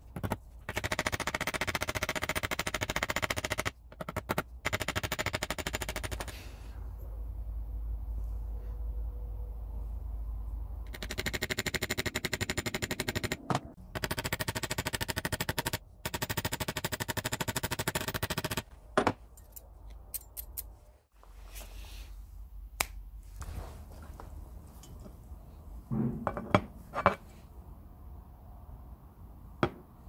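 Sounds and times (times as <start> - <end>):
rapid metallic hammering: 10.9 - 18.7.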